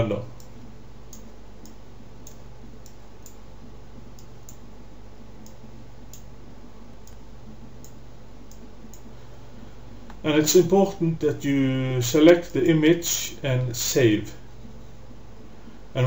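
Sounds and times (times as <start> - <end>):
low hum and hiss: 0.0 - 16.0
faint light ticks: 7.0 - 7.2.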